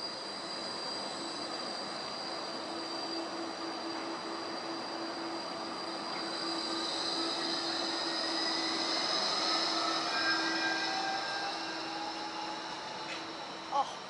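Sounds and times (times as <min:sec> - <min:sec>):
high whining motor tones: 0:00.0 - 0:14.0
tram electric hum: 0:00.0 - 0:14.0.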